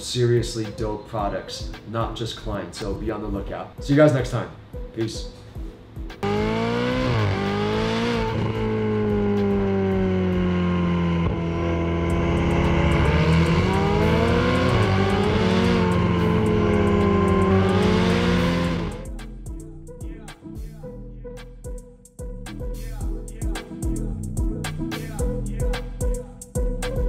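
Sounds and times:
sports car engines revving: 0:06.2 - 0:19.4.

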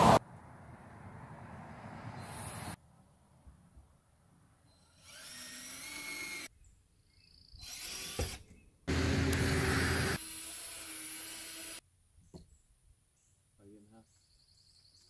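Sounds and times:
power drill driving screws: 0:04.8 - 0:06.5, 0:07.6 - 0:11.8.

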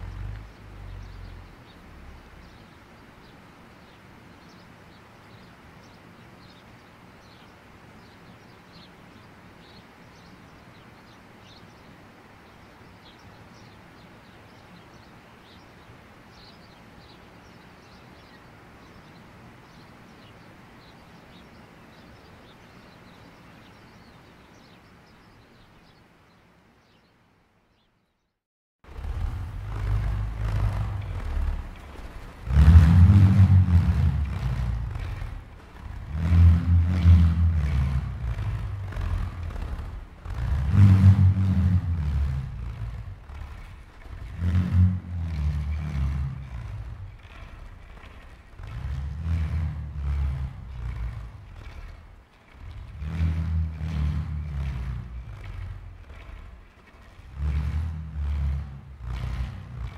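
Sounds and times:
steady background hiss: 0:00.0 - 0:28.1
small birds chirping: 0:00.0 - 0:59.9.

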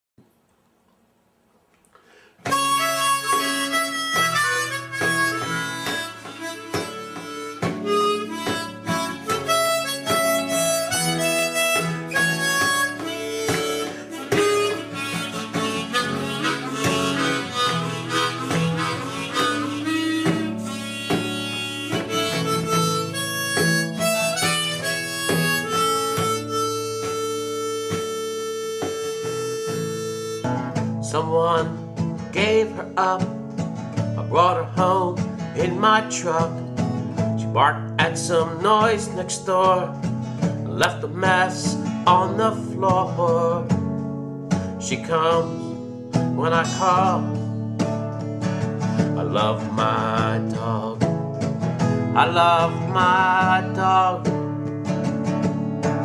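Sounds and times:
harmonica melody: 0:02.4 - 0:32.8, 0:52.2 - 0:54.2
plucked acoustic guitar: 0:02.4 - 0:56.0.

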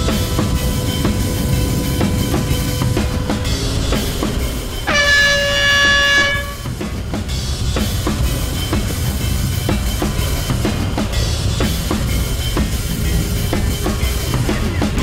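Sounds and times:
drum-kit beat music: 0:00.0 - 0:15.0.

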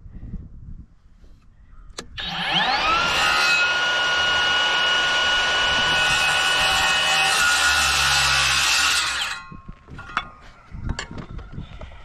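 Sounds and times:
circular saw whining: 0:02.0 - 0:09.6.

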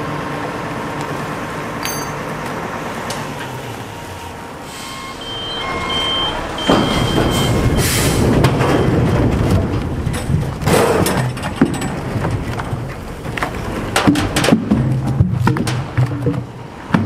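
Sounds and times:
truck engine running: 0:00.0 - 0:17.0
thin high squeal: 0:04.6 - 0:08.2.

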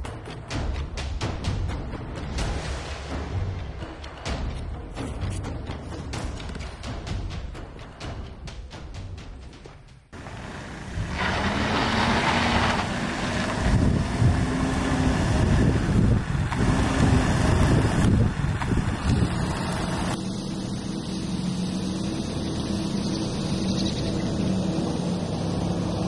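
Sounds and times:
tyre and road noise: 0:10.1 - 0:26.0
van engine running: 0:10.2 - 0:26.0.

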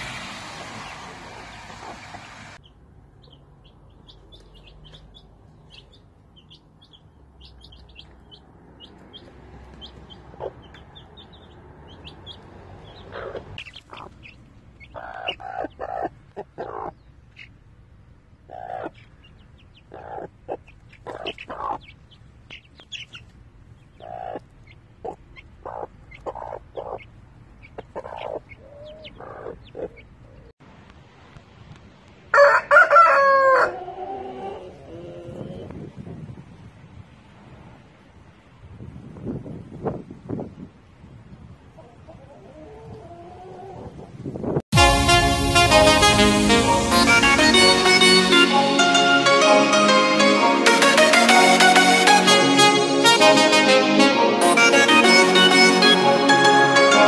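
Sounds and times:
chicks peeping: 0:00.8 - 0:17.6, 0:18.4 - 0:30.5
hen clucking: 0:04.0 - 0:17.6, 0:18.4 - 0:30.5, 0:41.7 - 0:44.1
rooster crowing: 0:32.3 - 0:34.7.

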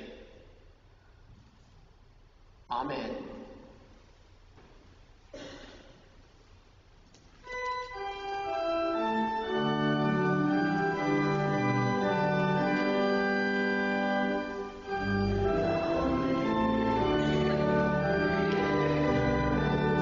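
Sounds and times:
church organ chords: 0:07.4 - 0:20.0.

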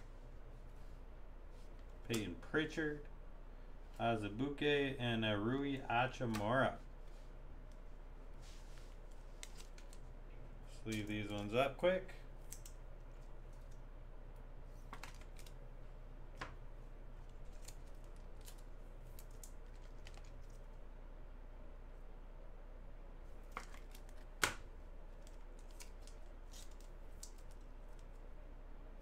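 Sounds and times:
low steady hum: 0:00.0 - 0:29.0
cards clicking and rustling: 0:08.8 - 0:10.1, 0:14.8 - 0:15.6, 0:17.2 - 0:20.7, 0:23.4 - 0:28.2.

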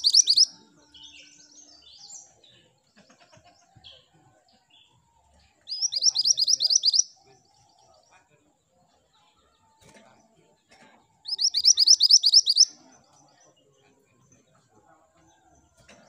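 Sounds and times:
bird chirping: 0:00.0 - 0:02.9, 0:04.7 - 0:08.2, 0:11.2 - 0:14.0.

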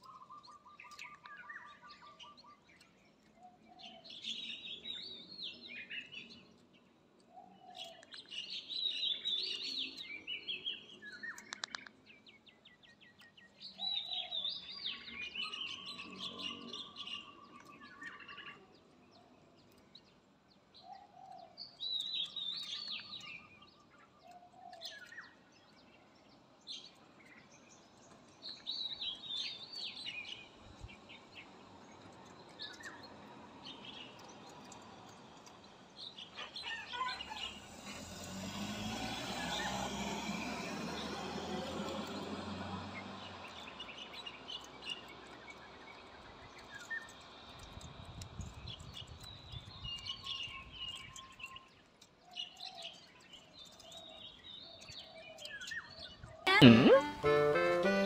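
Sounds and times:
high staccato bird notes: 0:56.5 - 0:58.0.

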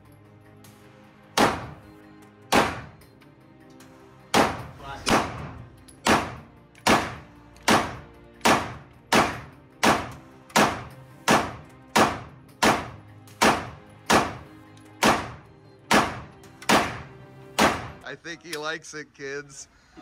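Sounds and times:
handgun shots indoors: 0:01.4 - 0:01.8, 0:02.5 - 0:03.0, 0:04.3 - 0:18.0.

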